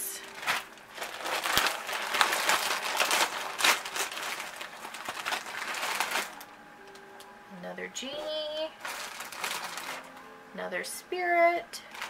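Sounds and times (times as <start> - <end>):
plastic bag crinkling: 0.0 - 7.0, 8.1 - 10.3, 11.8 - 12.0.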